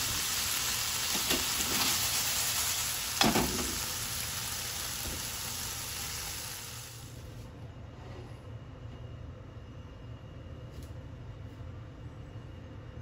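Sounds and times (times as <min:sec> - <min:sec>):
food sizzling in frying pan: 0:00.0 - 0:07.2
knock on pan: 0:03.2 - 0:03.8.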